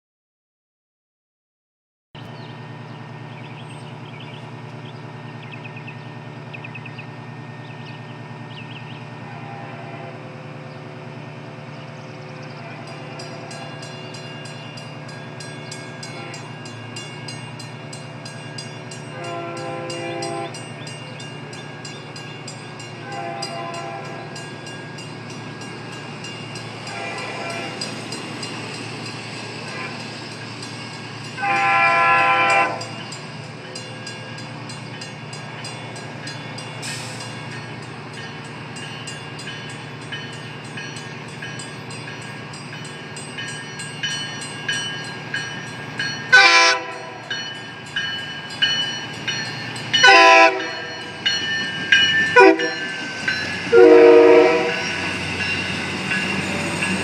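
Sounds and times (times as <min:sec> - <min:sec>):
train horn blasts: 0:09.2 - 0:10.4, 0:12.6 - 0:13.9, 0:16.0 - 0:16.6, 0:19.1 - 0:20.6, 0:22.9 - 0:24.5, 0:26.8 - 0:28.0, 0:29.6 - 0:30.2, 0:31.4 - 0:33.0, 0:46.3 - 0:47.4, 0:50.0 - 0:51.2, 0:52.3 - 0:53.0, 0:53.7 - 0:55.2.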